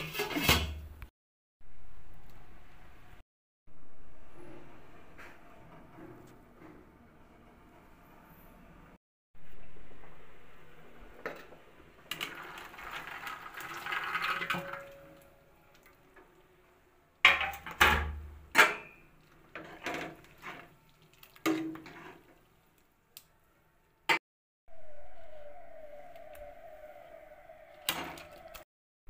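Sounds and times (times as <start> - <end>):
liquid splashing: 19.4 - 22.7.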